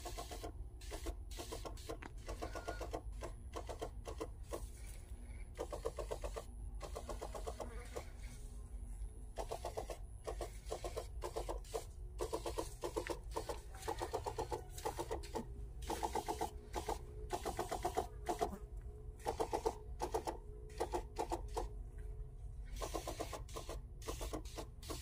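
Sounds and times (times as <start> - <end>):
sprayer pump pulsing: 0.0 - 8.5, 9.4 - 18.6, 19.2 - 21.7, 22.7 - 25.0.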